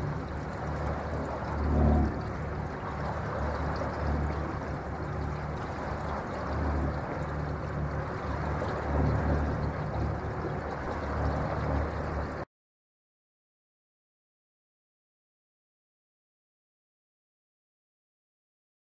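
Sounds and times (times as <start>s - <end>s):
low rumble: 0.0s - 12.4s
water rushing along boat hull: 0.0s - 12.5s.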